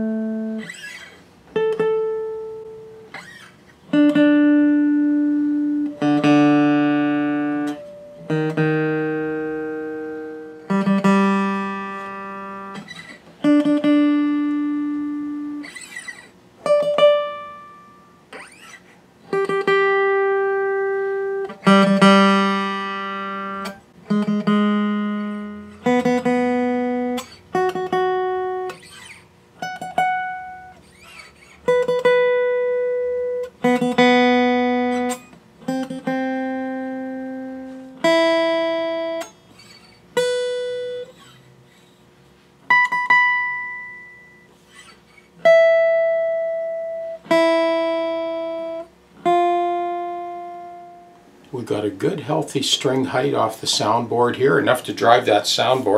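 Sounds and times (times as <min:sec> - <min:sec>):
acoustic guitar notes plucked: 0:00.0 - 0:55.9.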